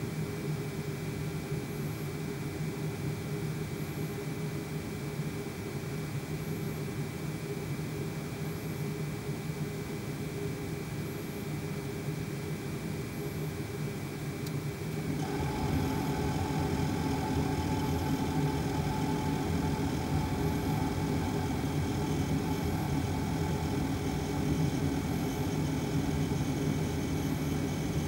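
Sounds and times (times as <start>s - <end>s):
heater blower fan whining: 12.1s - 28.0s.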